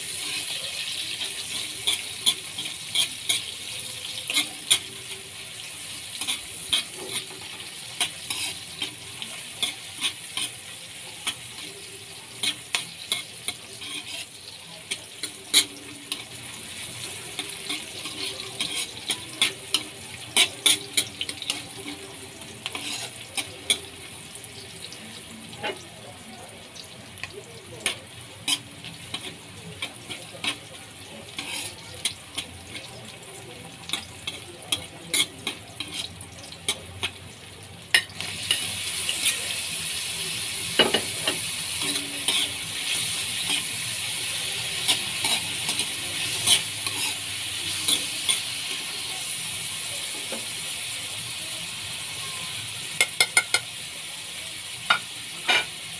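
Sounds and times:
food sizzling: 0:00.0 - 0:55.9
metal ladle scraping a wok: 0:06.0 - 0:10.6, 0:12.3 - 0:14.4, 0:15.2 - 0:23.9, 0:27.8 - 0:32.8, 0:40.7 - 0:48.8.

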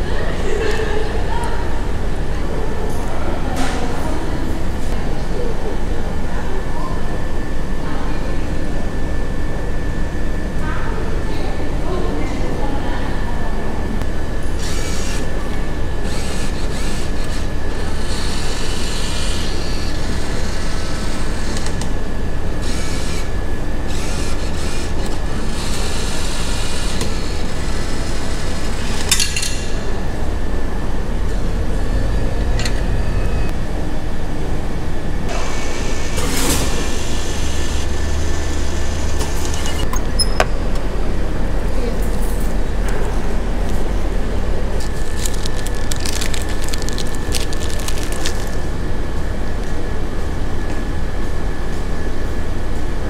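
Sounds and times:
steady low rumble: 0:29.6 - 0:35.3.

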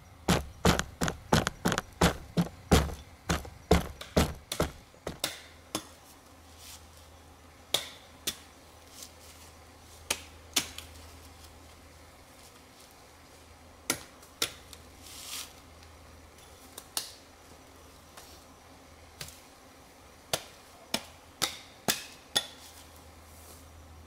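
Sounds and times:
hatchet chopping log: 0:00.3 - 0:05.4.

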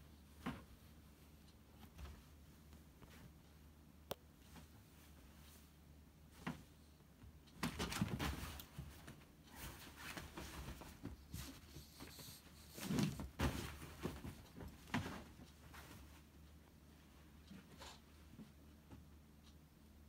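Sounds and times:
soft bumps: 0:07.6 - 0:16.3
fabric rustling: 0:07.8 - 0:16.4.

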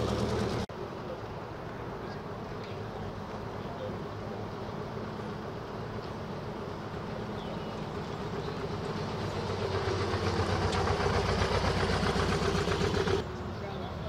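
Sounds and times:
vehicle engine running: 0:00.0 - 0:00.7, 0:06.4 - 0:13.2.

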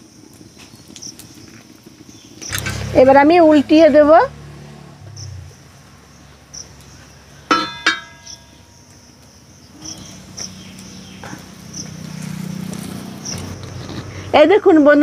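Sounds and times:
metal spatula clanking on griddle: 0:07.4 - 0:08.6.

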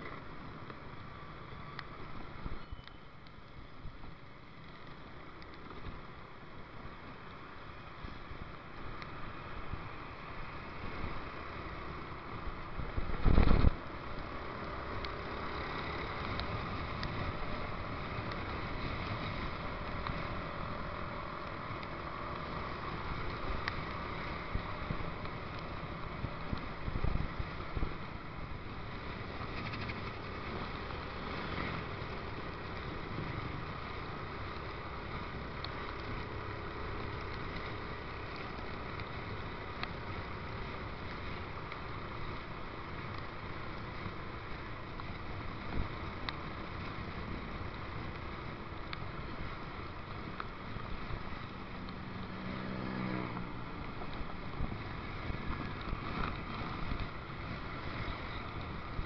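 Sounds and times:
tyres on wet road: 0:00.0 - 0:59.0
motorcycle engine running: 0:03.6 - 0:59.0
wind noise: 0:12.4 - 0:36.4.

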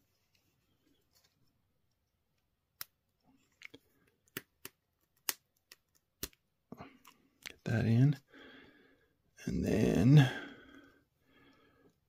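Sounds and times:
small plastic clicks and taps: 0:02.0 - 0:06.4.

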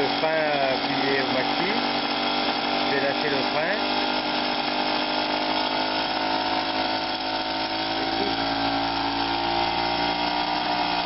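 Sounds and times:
two-stroke moped engine running: 0:00.0 - 0:11.0.

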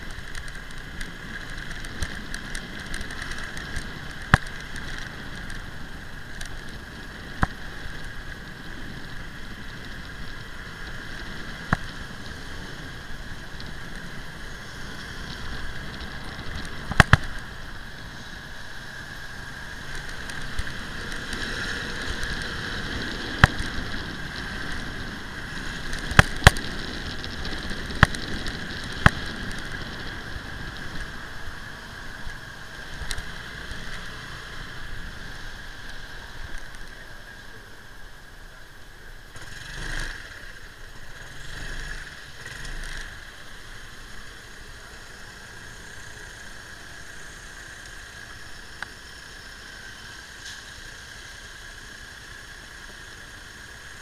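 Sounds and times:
constant whine-like hum: 0:00.0 - 0:54.0
motorbike engine at low speed: 0:00.0 - 0:54.0
road noise on brick paving: 0:00.0 - 0:54.0
sharp clicks and knocks: 0:15.3 - 0:17.4, 0:25.7 - 0:30.2.

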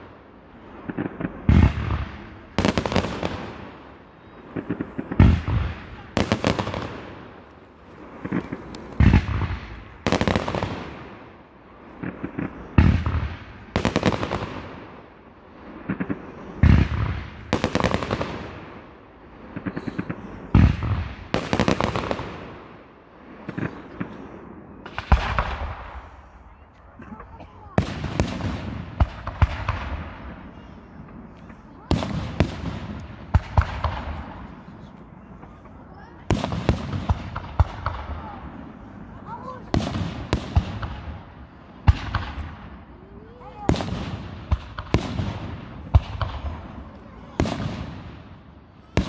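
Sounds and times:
firework crackling: 0:00.0 - 0:49.0
firework shells booming: 0:04.5 - 0:11.3, 0:19.5 - 0:22.8, 0:23.4 - 0:26.3, 0:27.0 - 0:30.5, 0:31.1 - 0:38.7, 0:39.6 - 0:42.9, 0:43.6 - 0:49.0.

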